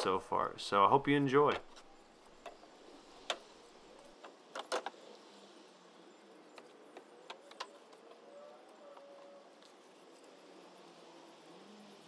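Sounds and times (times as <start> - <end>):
faint clicks and knocks: 1.4 - 5.0, 6.5 - 9.8
faint squeak: 7.5 - 9.7.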